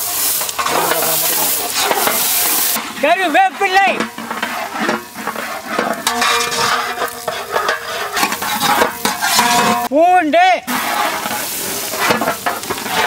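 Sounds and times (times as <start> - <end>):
leaves sizzling in hot oil: 0.0 - 9.9, 10.6 - 13.0
ladle clinking against metal pot: 4.0 - 9.9.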